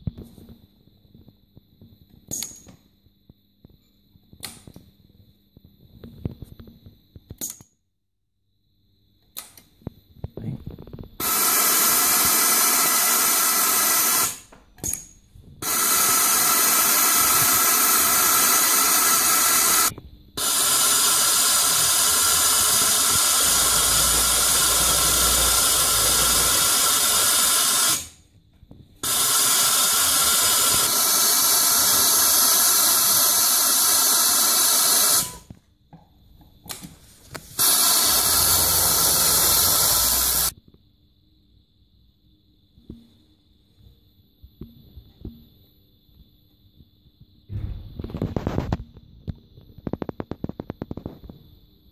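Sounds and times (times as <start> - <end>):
sewing machine whirring: 15.7 - 28.2, 29.0 - 35.5, 37.6 - 40.5.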